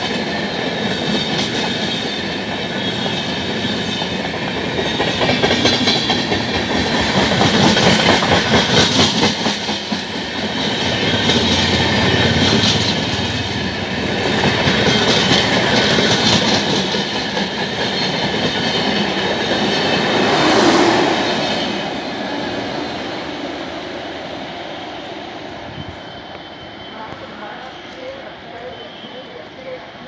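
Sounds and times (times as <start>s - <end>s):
wheels clickety-clack: 0.0s - 21.6s
train coaches passing at speed: 0.0s - 30.0s.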